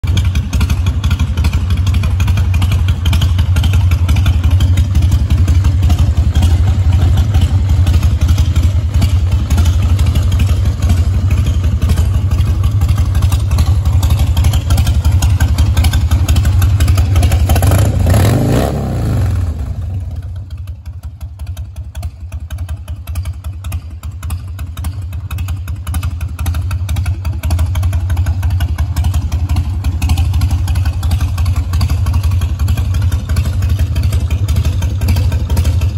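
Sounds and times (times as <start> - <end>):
motorcycle engine idling: 0.0 - 35.9.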